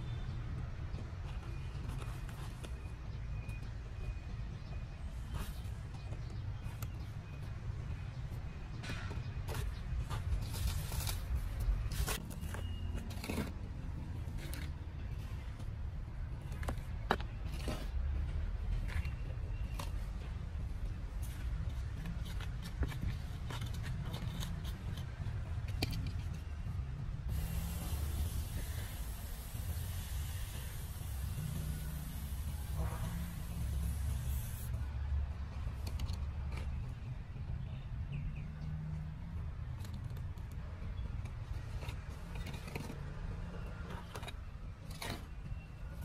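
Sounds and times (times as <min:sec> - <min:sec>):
trowel scraping dry soil: 0:27.3 - 0:34.7.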